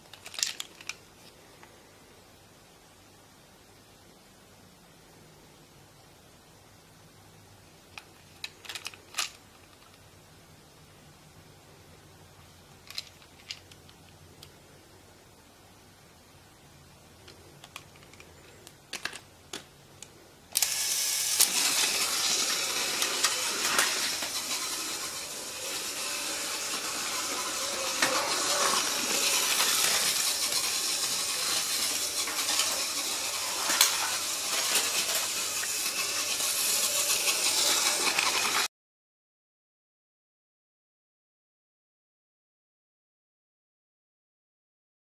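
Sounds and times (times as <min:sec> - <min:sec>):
toy train rattling on track: 0:00.1 - 0:01.0, 0:08.4 - 0:10.0, 0:12.9 - 0:13.7, 0:20.6 - 0:38.7.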